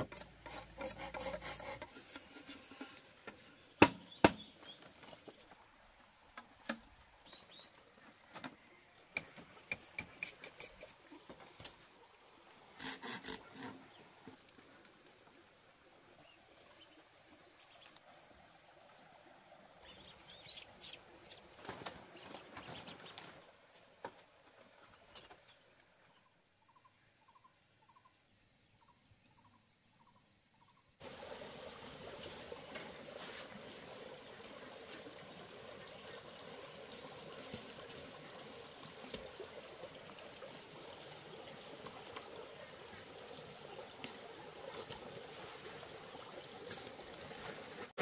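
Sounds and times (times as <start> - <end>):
bamboo poles knocking: 0.0 - 4.5.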